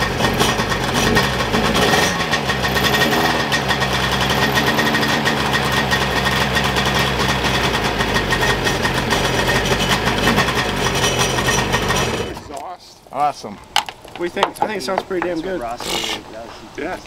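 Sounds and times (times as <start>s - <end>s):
two-stroke engine idling: 0.0s - 12.6s.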